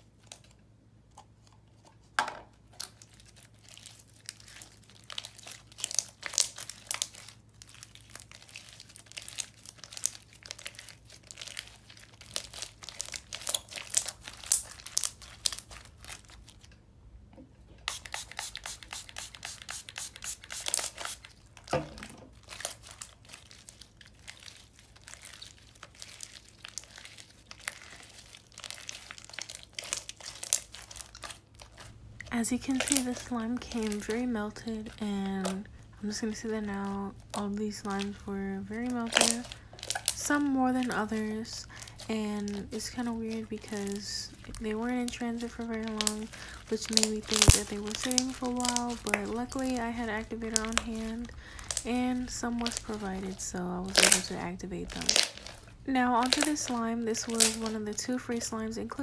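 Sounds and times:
slime clicking and popping: 39.0 - 40.2, 45.1 - 57.8.

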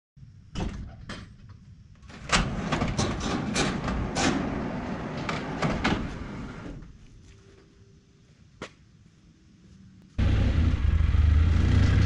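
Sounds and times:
metal barn door clanking: 0.6 - 6.8
sliding door rolling on track: 2.0 - 6.9.

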